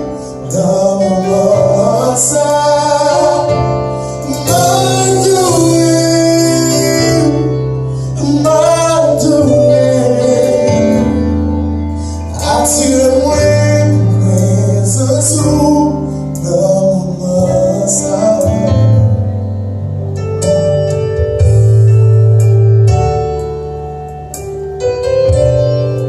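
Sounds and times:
man singing into a microphone: 0.0s - 11.4s, 12.2s - 19.1s
instrumental accompaniment with bass: 0.0s - 26.0s.

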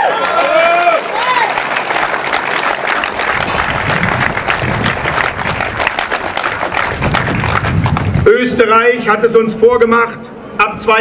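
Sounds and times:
crowd applauding: 0.0s - 8.3s.

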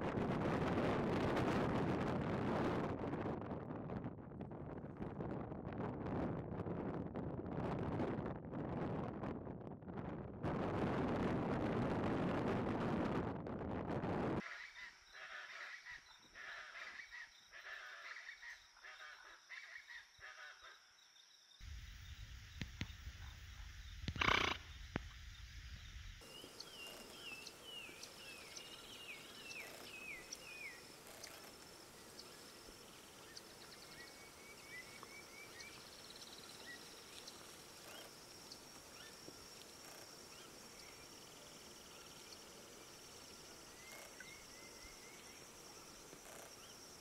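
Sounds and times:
scattered animal calls: 14.4s - 20.8s, 24.1s - 24.8s
loud low-pitched animal call: 24.1s - 24.8s.

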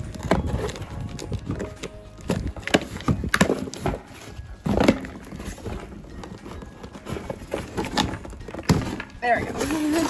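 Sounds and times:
cardboard flaps scraping and rustling: 0.0s - 10.0s.

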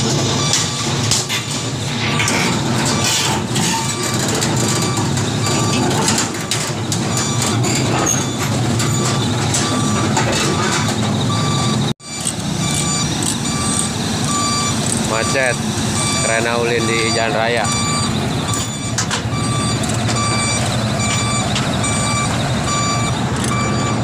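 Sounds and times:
diesel engine rumble: 0.0s - 24.0s
reversing alarm beeping: 0.3s - 24.0s.

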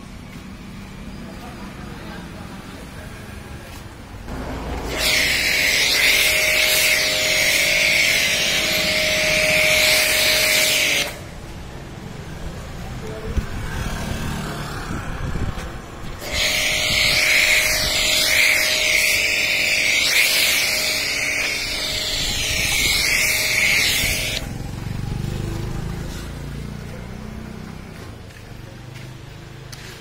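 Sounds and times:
pressure washer jet spraying: 4.4s - 11.3s, 16.2s - 24.5s.

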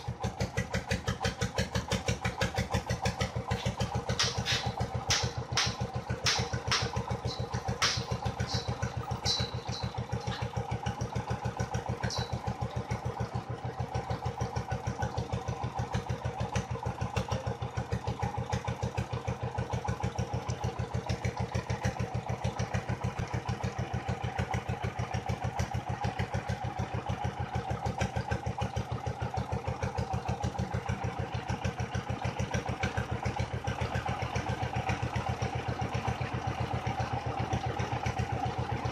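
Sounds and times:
water pump engine chugging: 0.0s - 38.9s
sharp metallic clinks: 4.2s - 10.6s.

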